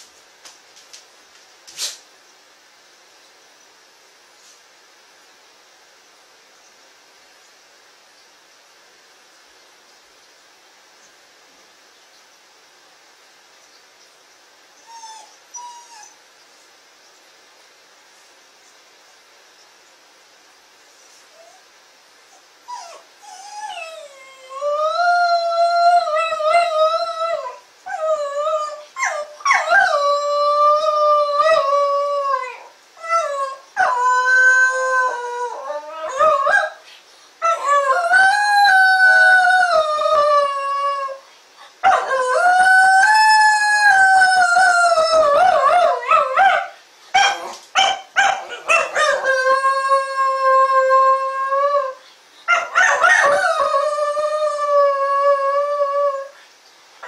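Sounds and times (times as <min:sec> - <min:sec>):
dog howling: 0:22.7 - 0:36.8, 0:37.4 - 0:41.2, 0:41.8 - 0:56.4.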